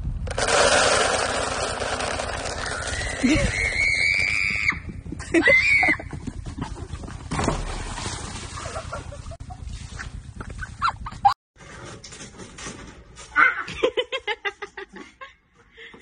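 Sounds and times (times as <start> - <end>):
feed rattling into bucket: 0.3 - 3.8.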